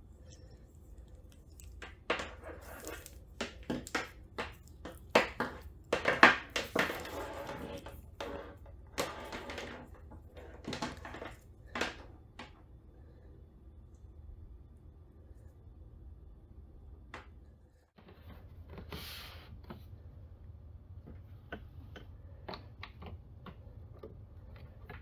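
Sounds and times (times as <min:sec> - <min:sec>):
cable rustling: 0:00.0 - 0:12.0.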